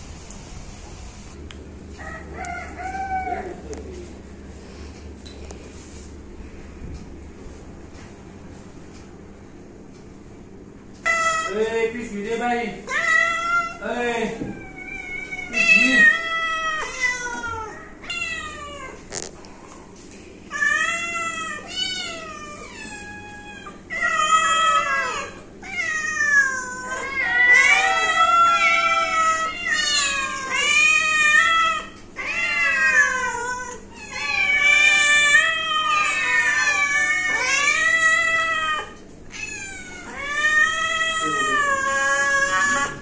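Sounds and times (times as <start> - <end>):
cats meowing: 2.0 - 4.0, 11.0 - 11.7, 12.8 - 19.2, 20.5 - 43.0.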